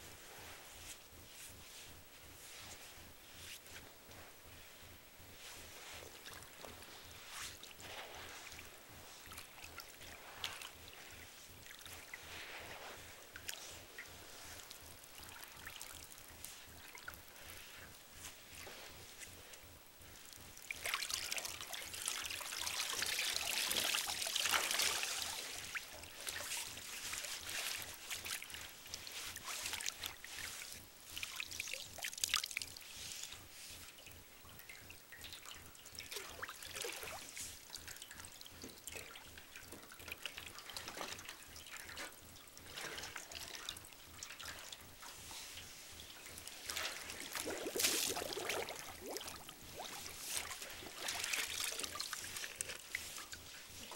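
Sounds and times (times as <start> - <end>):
water sloshing in a metal tub: 36.2 - 53.8.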